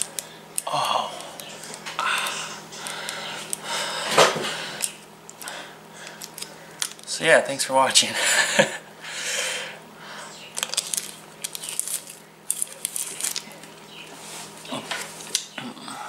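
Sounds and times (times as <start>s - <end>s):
breathing: 2.0s - 6.3s, 9.0s - 10.4s
plastic sleeve crinkling: 4.8s - 7.1s, 10.4s - 15.5s.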